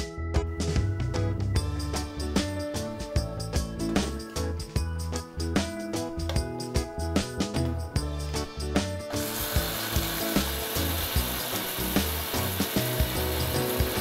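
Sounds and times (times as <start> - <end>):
background music: 0.0 - 14.0
mixer grinder whirring: 9.1 - 14.0.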